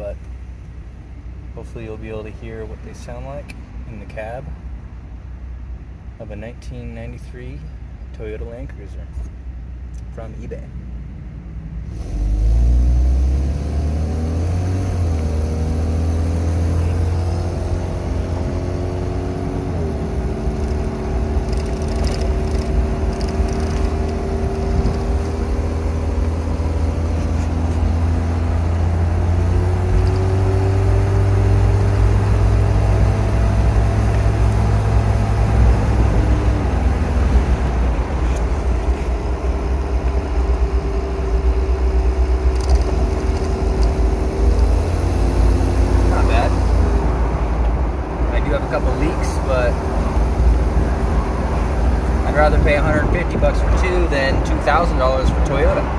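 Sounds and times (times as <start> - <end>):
car engine accelerating: 11.8 - 55.9.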